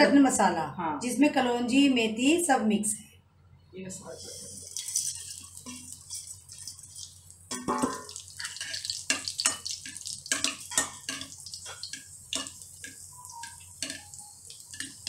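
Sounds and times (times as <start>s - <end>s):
low sizzle: 3.9s - 15.0s
seeds spluttering in hot oil: 4.3s - 15.0s
sharp pops and crackles: 4.8s - 15.0s.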